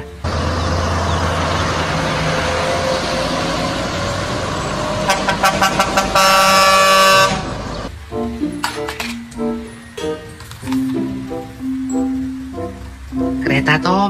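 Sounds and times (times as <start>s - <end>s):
heavy trucks on road: 0.0s - 14.0s
truck air horn toots: 0.8s - 7.9s.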